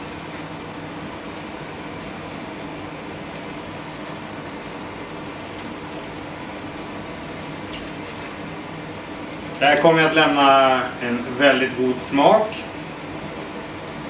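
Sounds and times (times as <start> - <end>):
bacon crunching: 0.0 - 1.1, 4.6 - 7.0, 7.7 - 9.9
steady hum: 0.0 - 14.0.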